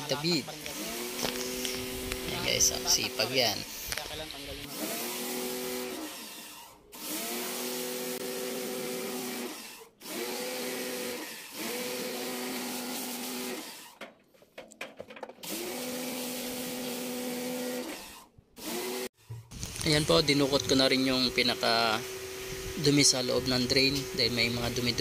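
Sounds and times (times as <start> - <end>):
water spray hissing: 0.1 - 6.4
pressure washer motor running: 0.1 - 14.0, 15.4 - 19.4, 20.2 - 25.0.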